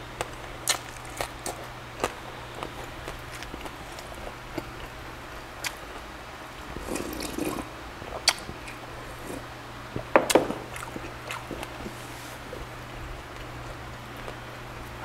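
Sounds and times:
slurping broth: 6.7 - 9.5.

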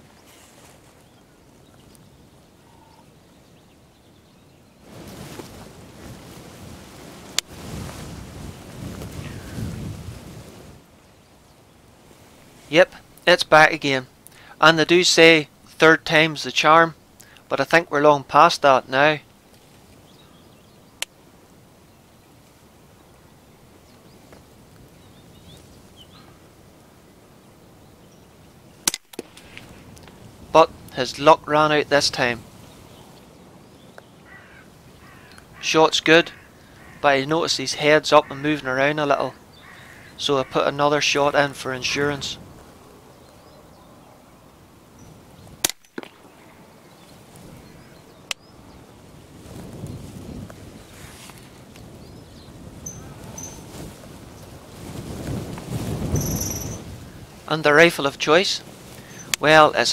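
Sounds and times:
distant bird chirps: 0.0 - 4.9, 18.6 - 49.0, 51.6 - 54.6, 56.1 - 57.8, 59.0 - 59.6.

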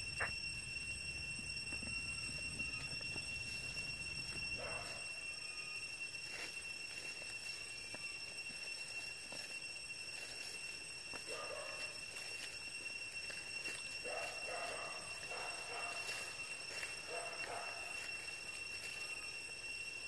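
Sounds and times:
faint ticks and rustles: 0.0 - 19.9
insects droning: 0.0 - 20.0.

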